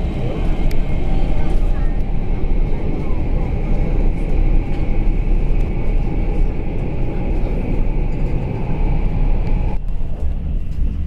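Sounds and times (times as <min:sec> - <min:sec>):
train low rumble: 0:00.0 - 0:11.0.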